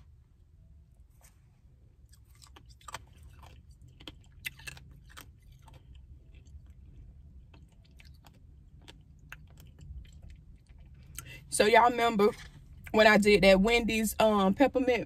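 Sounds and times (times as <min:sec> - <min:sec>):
person chewing crunchy food: 0:01.1 - 0:11.5.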